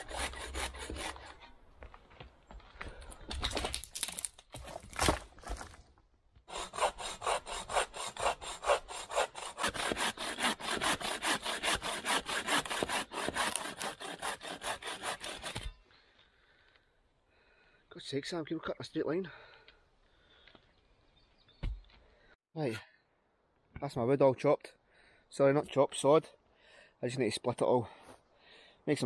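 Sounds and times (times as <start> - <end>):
bow saw cutting through log: 0.0 - 1.6, 6.5 - 15.8.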